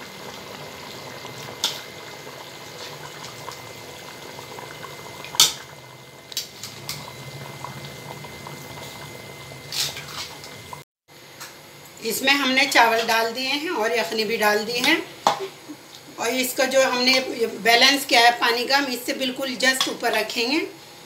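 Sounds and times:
stock boiling in a pot: 0.0s - 21.0s.

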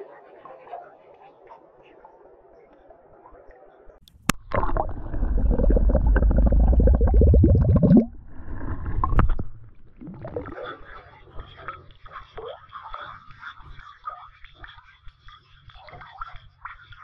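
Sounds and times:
bottle glugging underwater: 4.1s - 10.8s.

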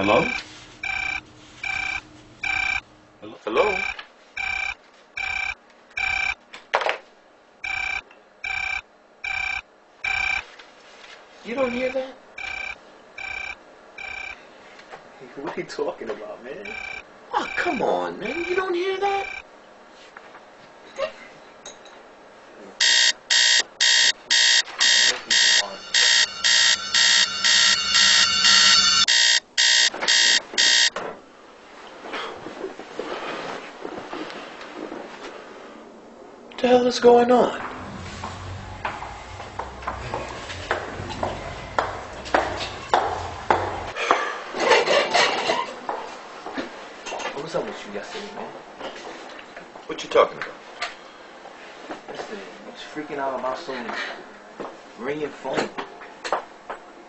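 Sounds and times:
alarm clock beeping: 0.0s - 2.8s, 3.7s - 6.4s, 7.6s - 10.4s, 11.7s - 14.4s, 16.6s - 18.6s, 22.8s - 30.9s
telephone electronic ringing: 0.1s - 2.8s, 3.7s - 6.4s, 7.6s - 10.5s, 11.8s - 14.4s, 16.7s - 18.6s, 22.8s - 30.9s
low hum: 37.3s - 44.0s.

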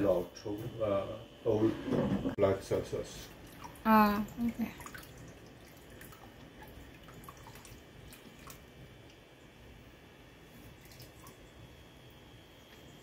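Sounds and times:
liquid trickling into pot: 3.2s - 9.6s, 10.7s - 11.7s.

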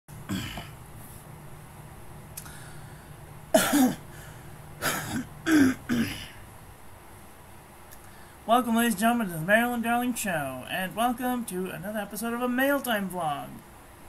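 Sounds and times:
man clearing throat and coughing: 0.2s - 0.8s, 3.5s - 4.1s, 4.8s - 6.4s.

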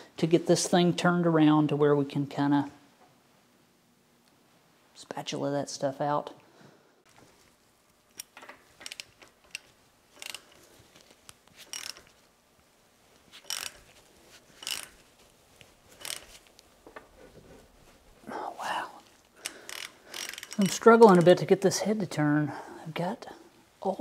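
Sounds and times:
ratchet wrench clicking: 8.2s - 10.6s, 11.6s - 12.1s, 13.4s - 13.9s, 14.6s - 15.0s, 16.0s - 16.4s, 19.4s - 21.3s.

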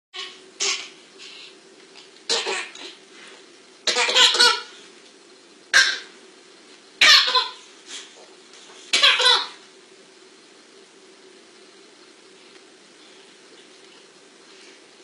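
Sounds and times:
baby giggling: 3.9s - 4.7s, 7.0s - 7.6s, 8.9s - 9.6s.

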